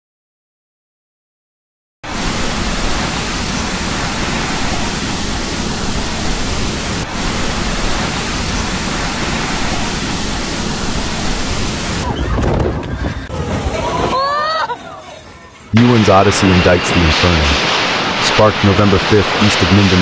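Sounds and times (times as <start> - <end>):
torrential rain: 2.0 - 12.1, 15.8 - 20.0.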